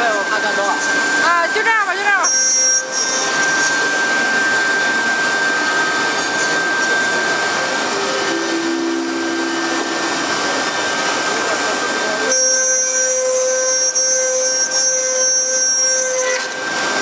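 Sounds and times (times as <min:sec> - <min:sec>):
lower hum: 0:00.0 - 0:17.0
router spindles whining: 0:00.0 - 0:17.0.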